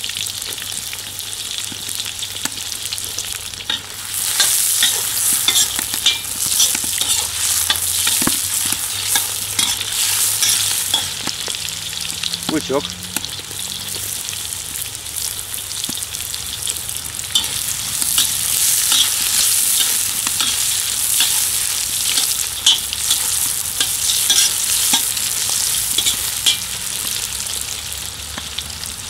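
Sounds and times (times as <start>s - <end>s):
vegetables sizzling in a wok: 0.0s - 29.0s
metal ladle scraping pan: 3.7s - 11.6s, 17.3s - 27.2s.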